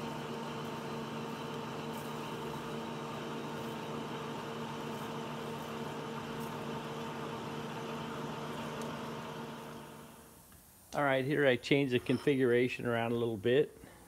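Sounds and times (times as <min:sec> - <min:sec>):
drilling hiss: 0:00.0 - 0:10.4
lathe humming: 0:00.0 - 0:10.4.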